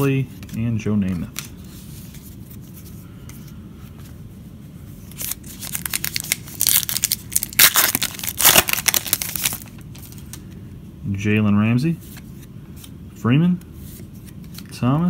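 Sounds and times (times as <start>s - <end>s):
wrapper crinkling and tearing: 5.1s - 10.3s.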